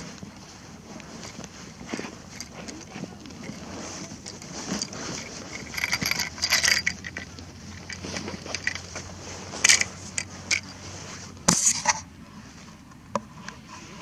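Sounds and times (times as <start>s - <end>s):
metallic gear jingling: 2.0s - 9.0s.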